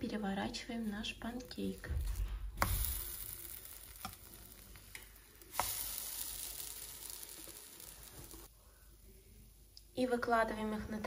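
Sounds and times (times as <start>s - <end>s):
pancake batter sizzling: 1.5s - 9.4s
spatula tapping pan: 2.1s - 7.3s.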